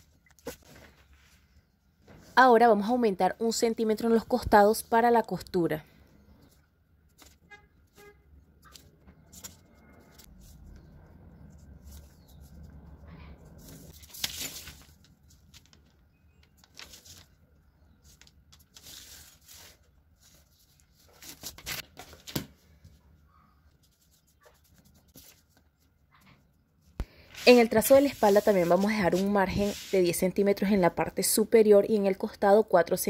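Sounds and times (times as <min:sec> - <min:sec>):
paper rustling: 0:07.1 - 0:10.8, 0:13.4 - 0:17.4, 0:18.0 - 0:23.0, 0:23.8 - 0:25.9, 0:27.2 - 0:30.0.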